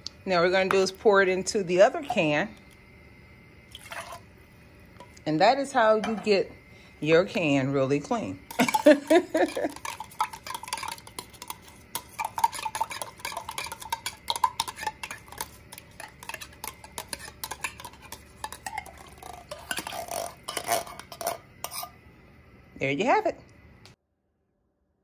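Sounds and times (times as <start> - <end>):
metal spoon scraping in can: 8.5 - 22.0.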